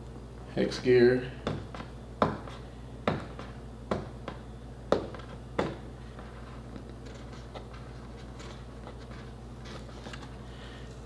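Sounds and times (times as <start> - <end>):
taps and knocks on cardboard box: 1.4 - 5.9.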